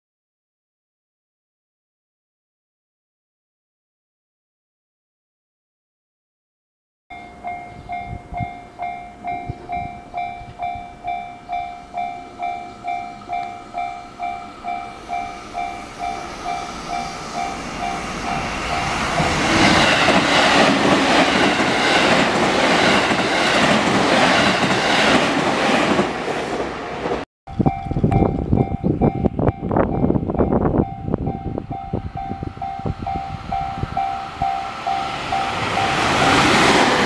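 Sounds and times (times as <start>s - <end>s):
level crossing warning bell: 7.1s - 19.3s, 27.5s - 37.0s
train wheels clattering: 16.8s - 26.1s.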